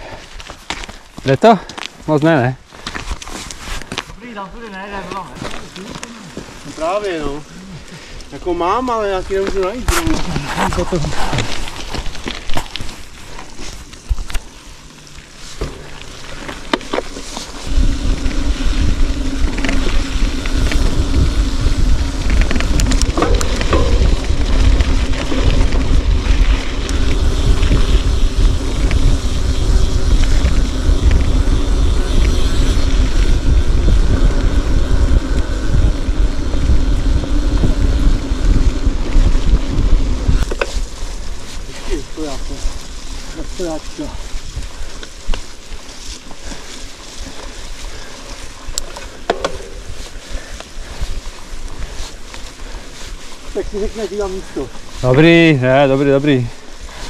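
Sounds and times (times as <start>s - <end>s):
steady hum: 14.0s - 41.7s
wind buffeting microphone: 17.6s - 45.7s, 46.5s - 57.0s.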